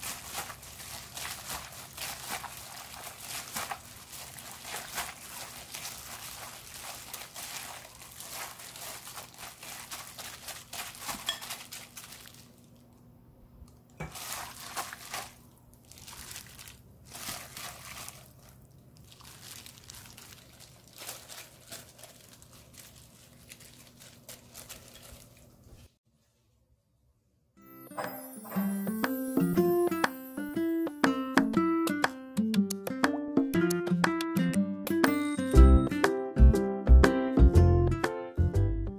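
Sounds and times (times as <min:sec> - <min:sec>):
wet squish of radish: 0:00.0 - 0:13.0, 0:14.1 - 0:25.4
plastic glove crinkling: 0:00.0 - 0:13.1, 0:13.9 - 0:26.5.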